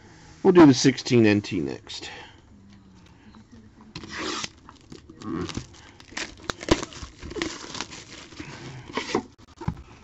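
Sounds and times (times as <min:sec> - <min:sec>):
plastic wrapping crinkling and tearing: 0:04.0 - 0:09.3.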